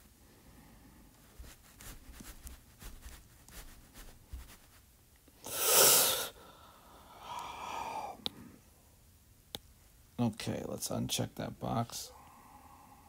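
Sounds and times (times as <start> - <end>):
loud burst of breath: 5.4 - 8.6.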